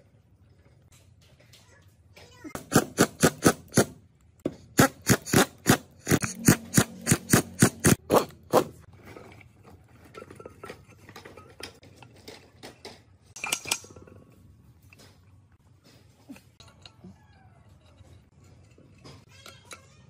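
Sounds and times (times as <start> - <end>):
metal parts clattering: 8.9 - 15.0
metal parts clicking: 10.1 - 14.1.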